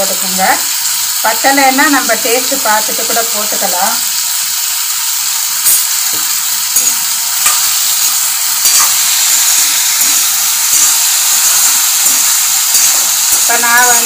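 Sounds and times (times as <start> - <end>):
potatoes sizzling in oil: 0.0 - 14.0
spatula scraping and knocking pan: 5.7 - 14.0.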